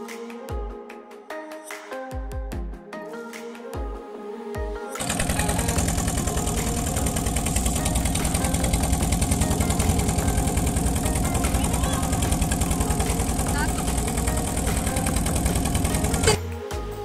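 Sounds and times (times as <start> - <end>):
motorboat engine chugging: 5.0 - 16.5.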